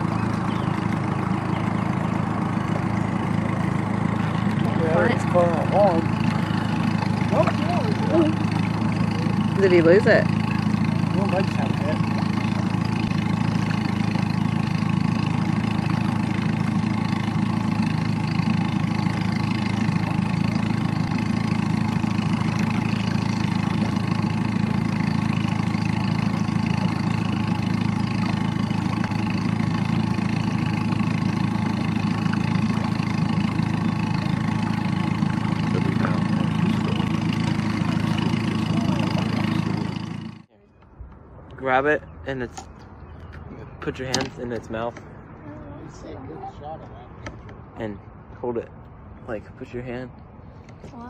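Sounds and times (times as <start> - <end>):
outboard motor idling: 0.0 - 51.0.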